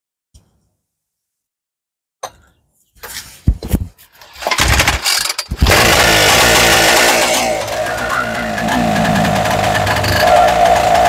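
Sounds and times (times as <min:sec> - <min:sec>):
two-stroke engine popping and running: 0:04.3 - 0:11.0.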